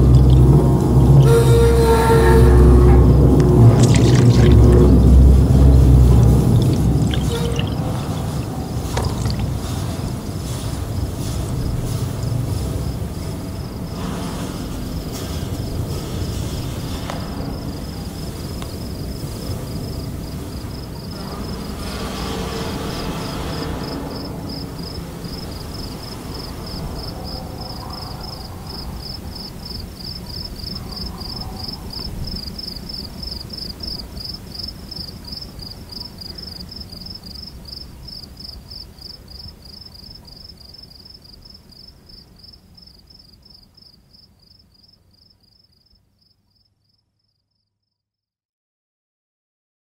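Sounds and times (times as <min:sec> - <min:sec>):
low rumble: 0:00.0 - 0:28.0
insects chirping: 0:00.0 - 0:48.0.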